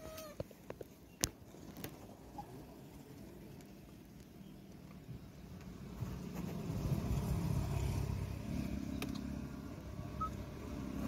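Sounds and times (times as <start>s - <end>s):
motorcycle engine passing: 5.9s - 11.0s.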